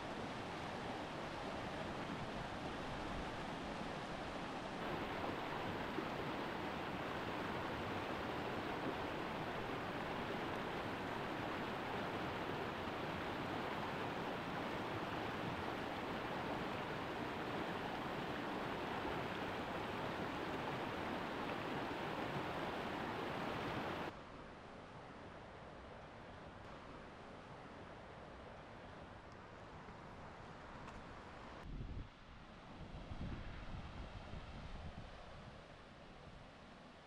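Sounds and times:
fast-flowing water rushing: 0.0 - 24.1.

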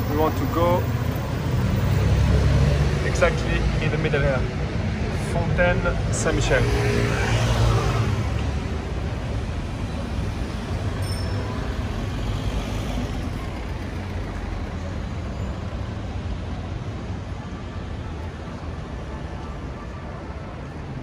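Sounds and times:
passing cars rumble: 0.0 - 19.7.

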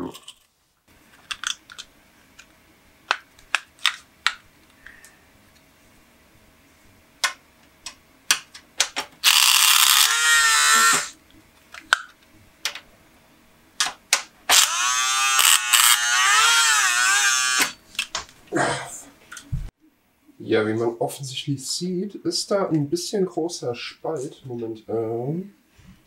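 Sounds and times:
small electric motor whine: 9.2 - 11.2, 14.5 - 17.8.

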